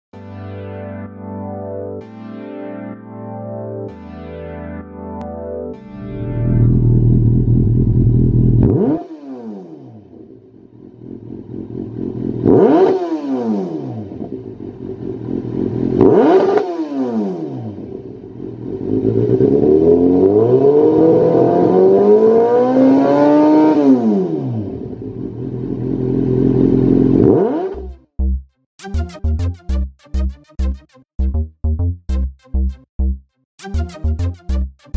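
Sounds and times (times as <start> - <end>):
motorcycle engine revving: 6.1 - 28.0.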